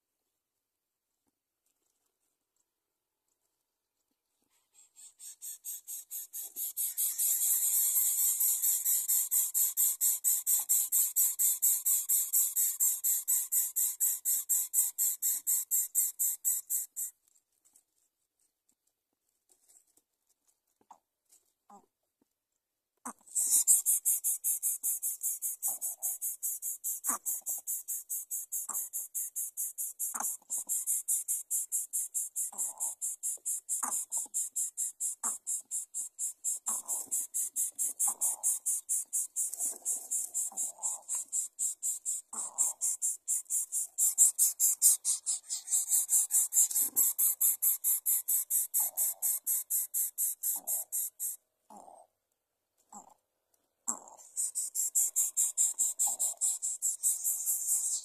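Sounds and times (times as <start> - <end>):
high-pitched rhythmic chirping: 4.7 - 17.1, 23.1 - 51.4, 53.9 - 58.0.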